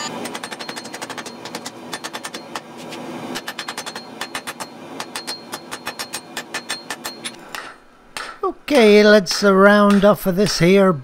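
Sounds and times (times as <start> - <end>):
hammer striking steel on anvil: 0.0 - 2.7, 3.4 - 8.5, 9.8 - 10.3.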